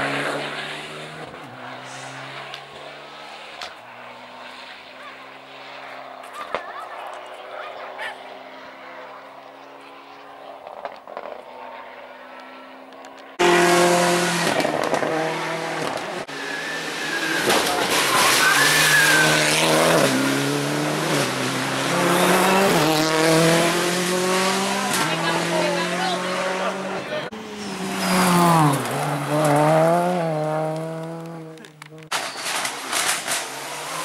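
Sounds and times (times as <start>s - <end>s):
rally car engine revving: 0.0s - 6.8s, 7.5s - 34.0s
tyre squeal: 16.3s - 19.8s.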